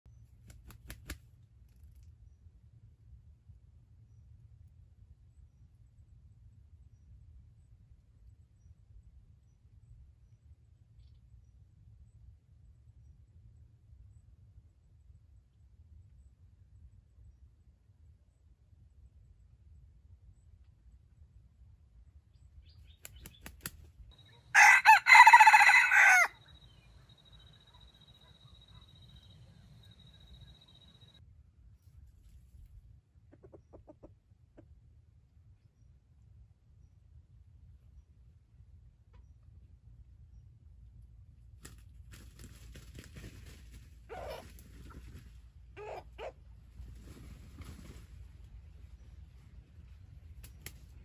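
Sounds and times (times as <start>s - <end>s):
rooster crowing: 24.5s - 26.9s.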